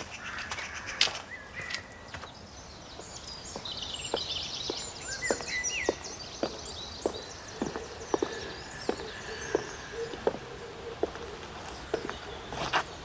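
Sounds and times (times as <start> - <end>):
birds chirping and twittering: 0.0 - 13.0
footsteps: 3.0 - 13.0.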